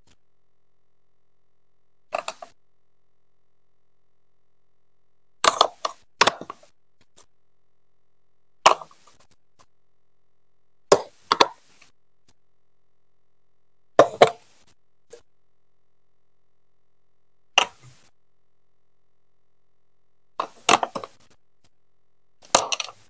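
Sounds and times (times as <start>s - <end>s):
plastic bricks clacking: 20.4s - 21.2s, 22.4s - 23.0s.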